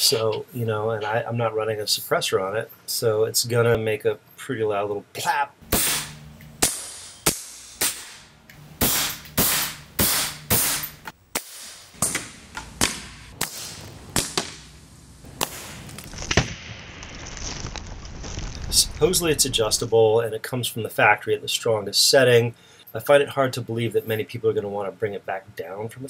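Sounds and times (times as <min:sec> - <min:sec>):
air rifle shots: 0:05.7 - 0:14.7, 0:15.3 - 0:16.5.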